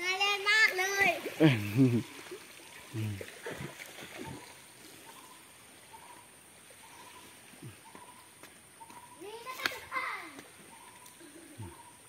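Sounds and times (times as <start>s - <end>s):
stream running over rock: 0.0s - 10.7s.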